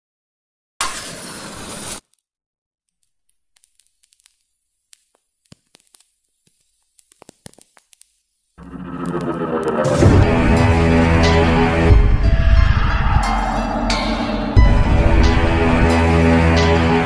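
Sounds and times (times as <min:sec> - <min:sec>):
match strike flare: 0:00.8 - 0:02.2, 0:03.5 - 0:09.8
match burning crackles: 0:00.8 - 0:02.3, 0:02.9 - 0:09.9
music: 0:08.6 - 0:17.0.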